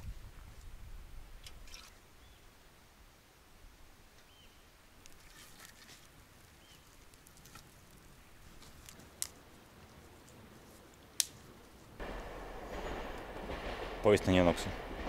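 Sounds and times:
kindling crackling and clicking: 0:06.1 - 0:15.0
sharp twig snaps: 0:08.6 - 0:09.4, 0:11.2 - 0:11.4.

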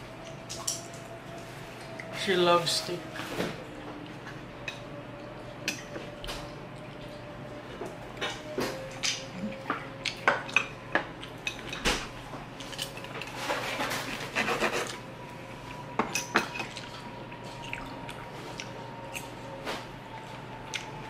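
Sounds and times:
knife sawing on wooden board: 0:13.6 - 0:15.0.

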